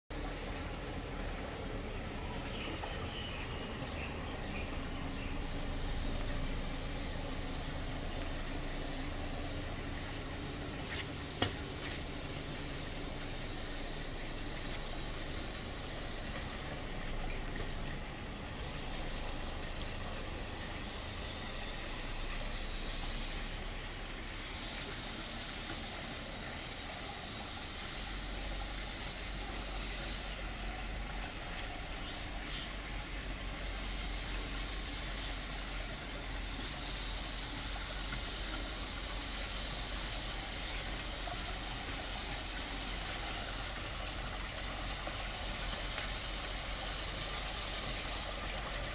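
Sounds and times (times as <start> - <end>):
waterfall splashing into pond: 0.1 - 48.9.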